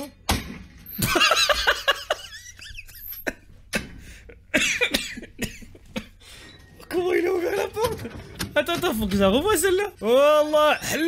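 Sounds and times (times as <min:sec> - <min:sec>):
man laughing hard: 0:01.0 - 0:06.2.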